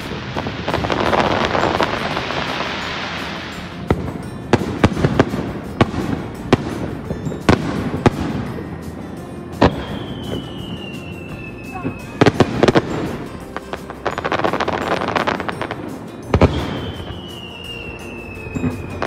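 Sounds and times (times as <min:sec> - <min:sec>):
fireworks crackling: 0:00.0 - 0:19.0
fireworks shells banging: 0:00.0 - 0:19.0
firework whistle: 0:09.6 - 0:13.4, 0:16.4 - 0:19.0.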